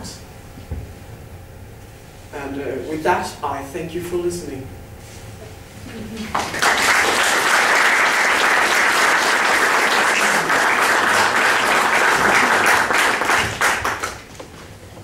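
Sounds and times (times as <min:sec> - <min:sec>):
audience applauding: 0:06.2 - 0:14.4.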